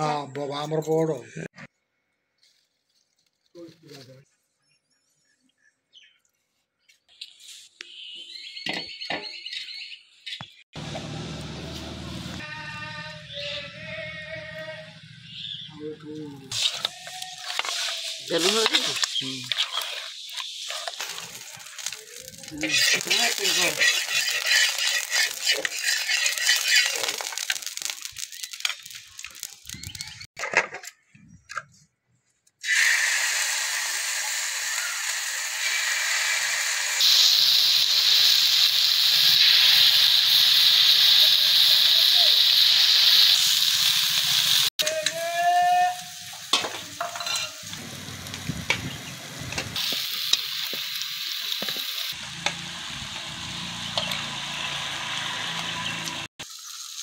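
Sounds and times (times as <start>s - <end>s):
fish sizzling in hot oil: 16.5s - 30.3s, 32.6s - 44.8s, 45.8s - 57.0s.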